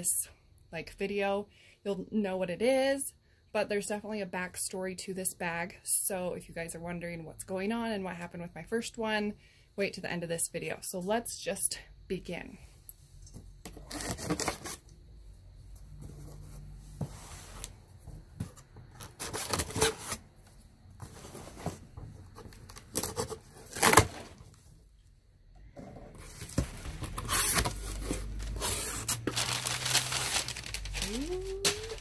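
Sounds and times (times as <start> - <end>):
cardboard flaps scraping and rustling: 16.0 - 20.4, 21.0 - 24.5, 26.0 - 32.0
tape tearing and peeling: 22.7 - 24.4, 26.6 - 32.0.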